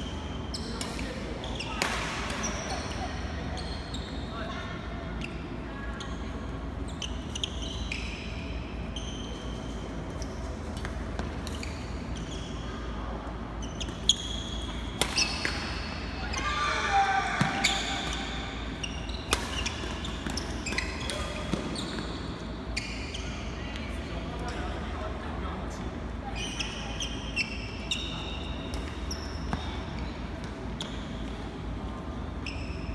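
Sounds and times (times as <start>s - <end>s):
shoes squeaking on court floor: 0.0s - 16.5s, 17.3s - 24.7s, 26.3s - 32.9s
rackets hitting shuttlecock: 14.6s - 15.8s.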